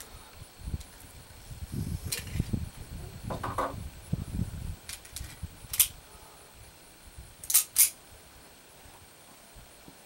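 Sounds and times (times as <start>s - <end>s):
sharp metallic clicks of pistol: 5.7s - 6.0s, 7.4s - 8.0s.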